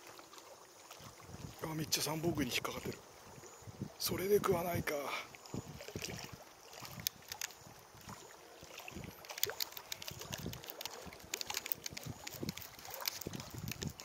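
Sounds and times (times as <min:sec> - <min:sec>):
small waves lapping: 0:00.0 - 0:14.0
light clicks: 0:06.9 - 0:07.6, 0:09.2 - 0:14.0.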